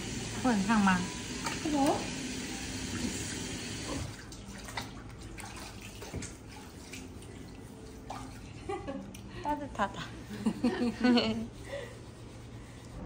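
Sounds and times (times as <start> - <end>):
water splashing and dripping: 1.4 - 9.3.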